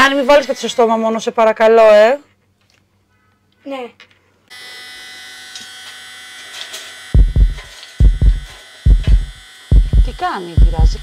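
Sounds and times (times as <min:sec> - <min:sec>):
electric nail drill whine: 0:04.5 - 0:11.0
heartbeat sound effect: 0:07.2 - 0:11.0.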